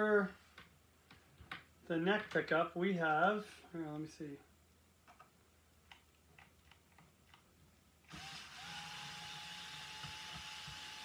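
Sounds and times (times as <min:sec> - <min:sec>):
cordless drill whining: 0:08.1 - 0:11.0.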